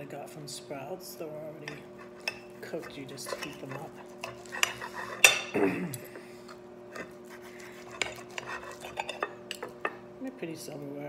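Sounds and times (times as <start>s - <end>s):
steady low hum: 0.0s - 11.0s
metal cutlery clinking: 1.7s - 6.1s, 7.9s - 10.0s.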